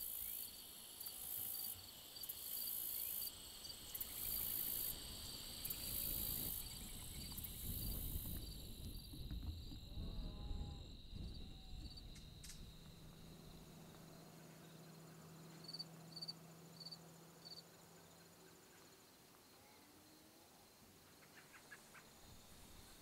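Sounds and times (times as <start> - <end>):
crickets trilling: 0.0 - 23.0
faint drawn-out animal call: 17.8 - 22.3.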